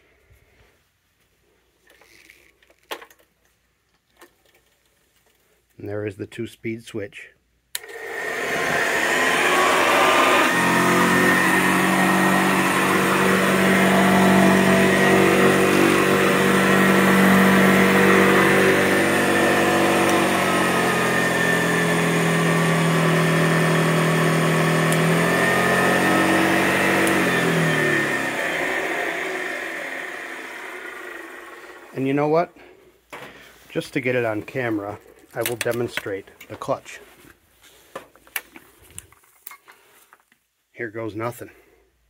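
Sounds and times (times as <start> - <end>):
vacuum cleaner motor running: 7.8 - 32.2.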